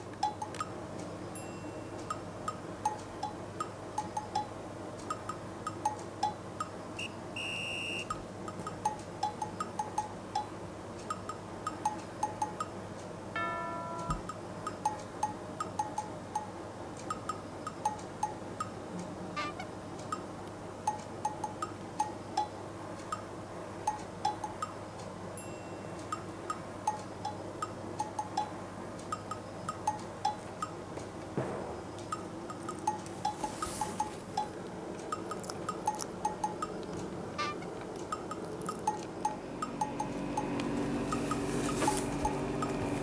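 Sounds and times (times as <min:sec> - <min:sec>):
plinking bell-like background music: 0:13.4 - 0:14.4, 0:25.4 - 0:26.0.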